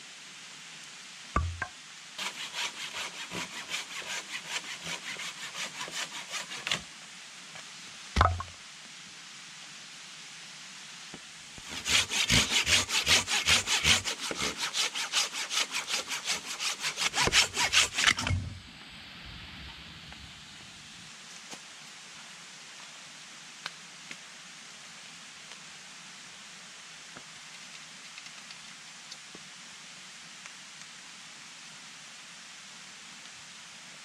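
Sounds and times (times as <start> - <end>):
wooden knock: 1.4 - 1.7, 8.2 - 8.5
hand saw cutting log: 2.2 - 6.9, 11.6 - 18.6.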